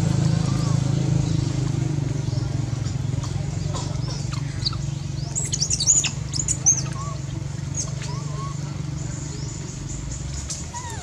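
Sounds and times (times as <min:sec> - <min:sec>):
soft animal calls: 0:00.2 - 0:01.6, 0:02.4 - 0:11.0.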